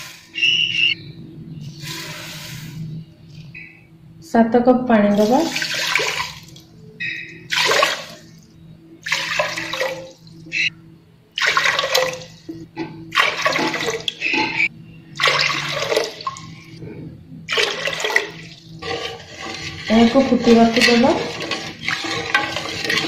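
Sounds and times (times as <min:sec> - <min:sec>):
water pouring into a pot: 0:05.2 - 0:06.7, 0:07.5 - 0:08.3, 0:09.0 - 0:10.3, 0:11.4 - 0:12.4, 0:13.1 - 0:14.2, 0:15.2 - 0:16.6, 0:17.5 - 0:23.0.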